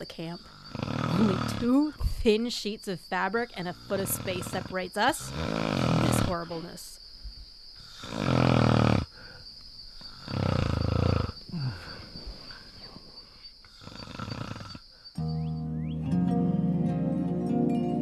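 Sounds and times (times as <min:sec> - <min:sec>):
person snoring loudly: 0:00.4 - 0:02.0, 0:03.6 - 0:06.5, 0:07.8 - 0:09.4, 0:10.0 - 0:12.1, 0:13.7 - 0:14.9.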